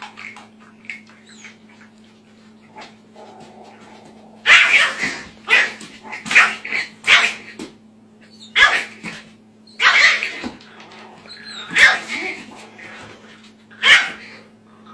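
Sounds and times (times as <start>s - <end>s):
steady low hum: 0.0s - 14.9s
dog barking: 4.4s - 7.4s, 8.5s - 9.0s, 9.8s - 10.3s, 11.6s - 12.2s, 13.8s - 14.2s.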